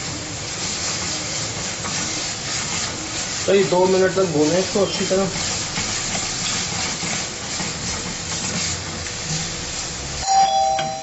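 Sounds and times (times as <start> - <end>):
meat sizzling in a pan: 0.0 - 10.2
spatula stirring: 0.0 - 10.2
steady high tone: 10.2 - 11.0.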